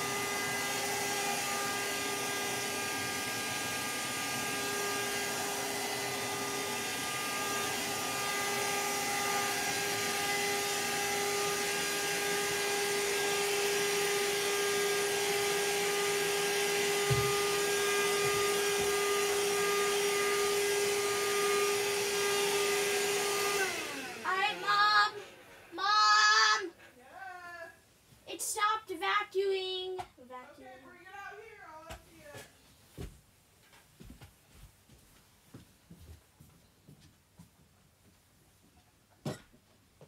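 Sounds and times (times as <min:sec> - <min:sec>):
vacuum cleaner running: 0:00.0 - 0:26.7.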